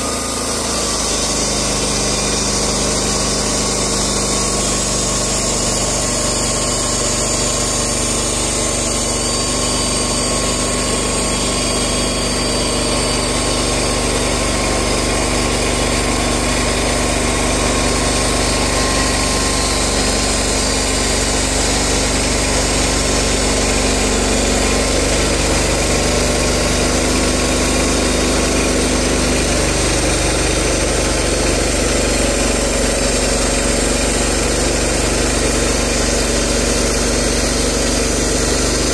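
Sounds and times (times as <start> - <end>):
band saw cutting log: 0.0 - 38.9
sawmill engine running: 0.0 - 38.9.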